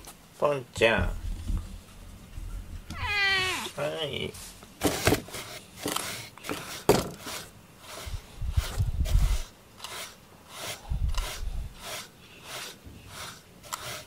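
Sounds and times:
wire brush raking through fur: 0:05.3 - 0:14.0.

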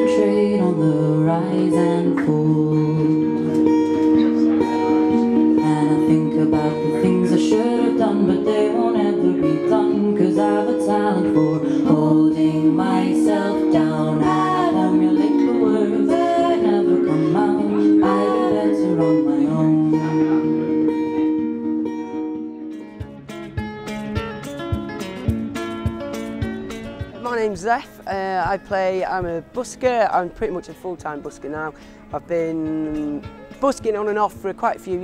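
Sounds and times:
woman singing: 0:00.0 - 0:03.7, 0:05.1 - 0:21.3
guitar strumming and plucking: 0:00.0 - 0:35.0.

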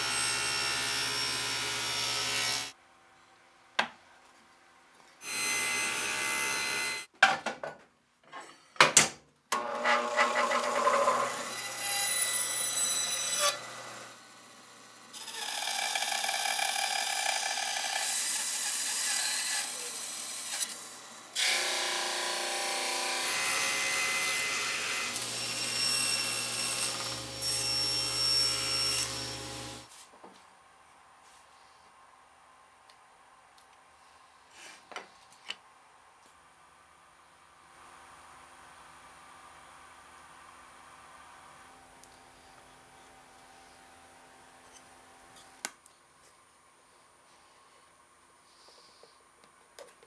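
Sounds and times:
table saw cutting wood: 0:00.0 - 0:02.7, 0:05.2 - 0:07.1, 0:09.6 - 0:14.6, 0:15.2 - 0:29.9.

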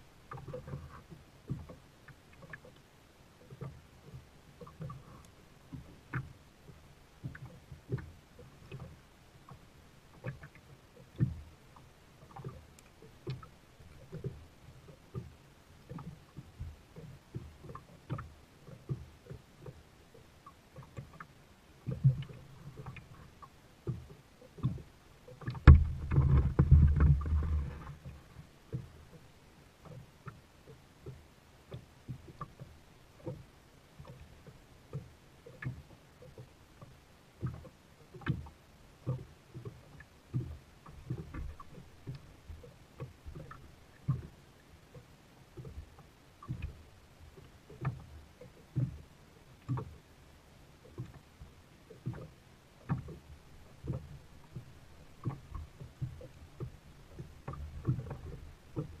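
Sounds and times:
light water sounds: 0:00.0 - 0:59.0
kayak knocks and clicks: 0:03.4 - 0:09.6, 0:10.2 - 0:11.5, 0:12.2 - 0:19.8, 0:20.8 - 0:29.2, 0:34.0 - 0:49.0, 0:49.6 - 0:50.0, 0:50.8 - 0:59.0
low rumbling: 0:25.6 - 0:28.4.

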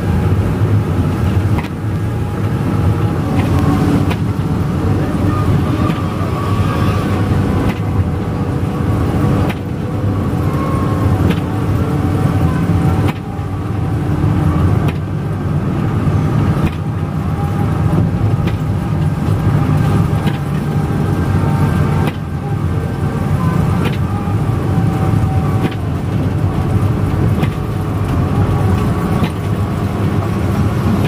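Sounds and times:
bus engine drone: 0:00.0 - 0:31.0
tyres on wet road: 0:00.0 - 0:31.0.

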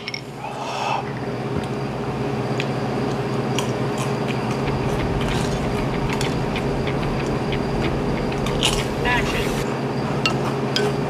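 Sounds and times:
low mechanical hum: 0:04.5 - 0:09.6.

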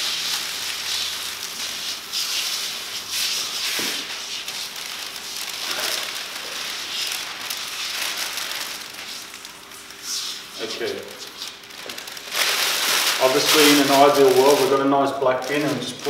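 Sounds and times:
plastic liner crackling: 0:00.1 - 0:16.0.

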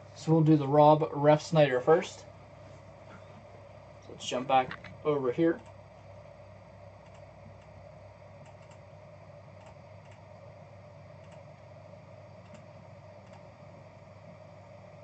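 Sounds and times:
steady low hum: 0:00.0 - 0:15.0
computer mouse clicks: 0:07.0 - 0:07.7, 0:08.4 - 0:08.8, 0:09.6 - 0:10.2, 0:11.2 - 0:11.7, 0:12.4 - 0:13.5.

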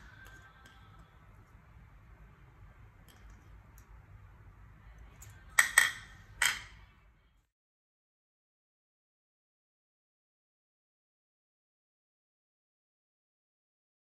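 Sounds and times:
faint low hum: 0:00.0 - 0:07.5
utensil clinking on ceramic plate: 0:05.6 - 0:06.8.

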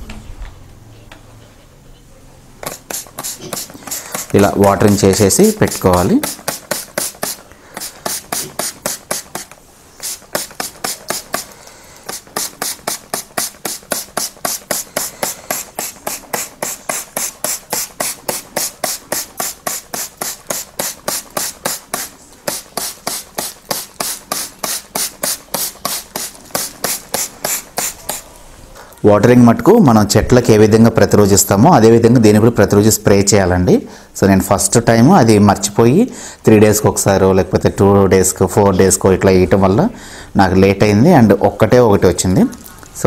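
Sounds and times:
spray bottle squirting: 0:02.6 - 0:28.9.

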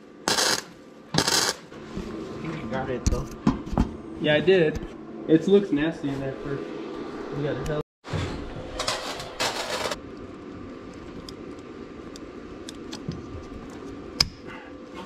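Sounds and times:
welder crackling: 0:00.3 - 0:01.7.

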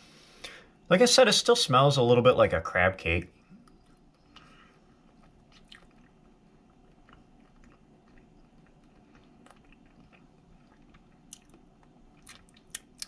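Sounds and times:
person chewing: 0:03.6 - 0:13.0.

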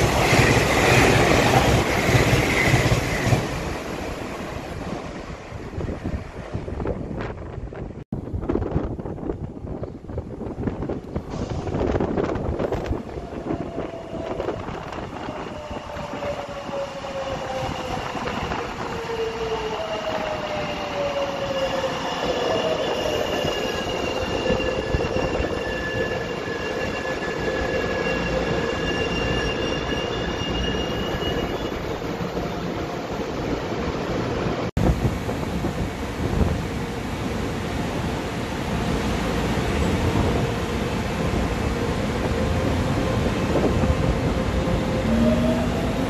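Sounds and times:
train brakes squealing: 0:13.5 - 0:32.6
train rumble and falling whine: 0:33.2 - 0:46.0.

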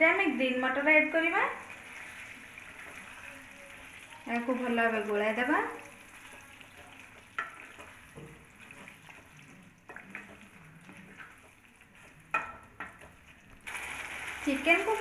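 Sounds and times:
faint sizzle in frying pan: 0:00.0 - 0:15.0
spatula scraping and knocking pan: 0:06.2 - 0:13.4.

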